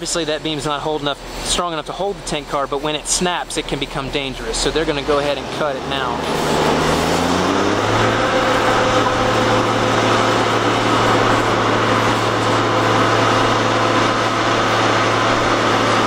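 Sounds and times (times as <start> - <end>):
engine idling: 0.0 - 16.0
faint whine: 5.7 - 16.0.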